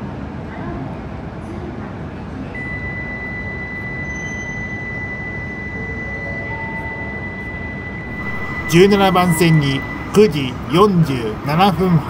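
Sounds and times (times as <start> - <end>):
thin high-pitched tone: 2.8 - 12.0
train station platform noise: 4.9 - 12.0.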